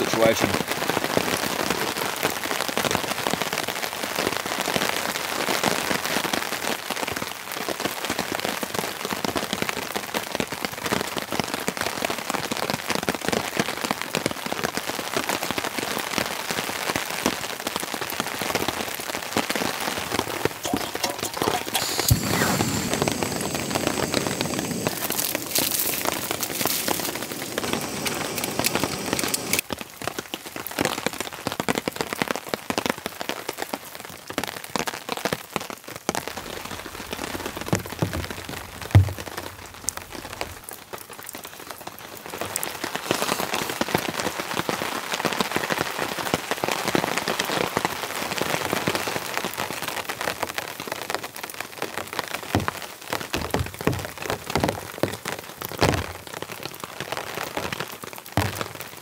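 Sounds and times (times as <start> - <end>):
rain pattering on a tarp: 0.0 - 59.0
packet crinkling: 20.3 - 29.6
thump: 37.7 - 39.6, 53.4 - 55.2, 58.4 - 58.7.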